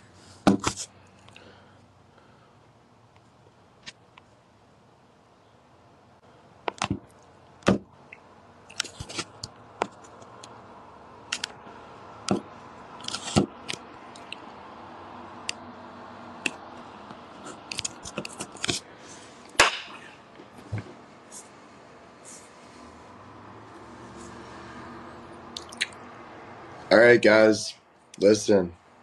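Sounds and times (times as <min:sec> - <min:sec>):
faint steady background noise: 0:00.0 - 0:29.0
sharp clicks and knocks: 0:06.6 - 0:10.6.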